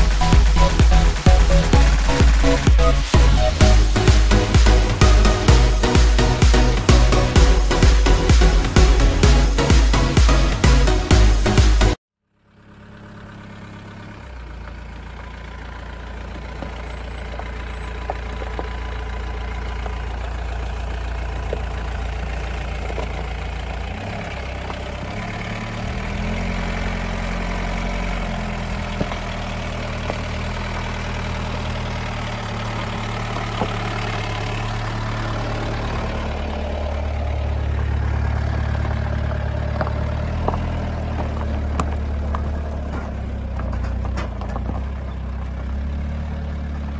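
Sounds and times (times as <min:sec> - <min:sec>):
diesel engine at low crawl: 0:00.0 - 0:46.9
stones clicking under tyres: 0:14.6 - 0:46.9.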